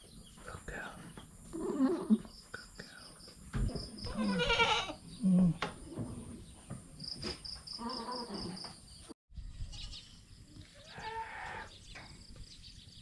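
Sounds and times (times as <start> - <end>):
insects chirping: 0.0 - 5.6, 6.5 - 9.1
goats bleating: 4.1 - 5.0.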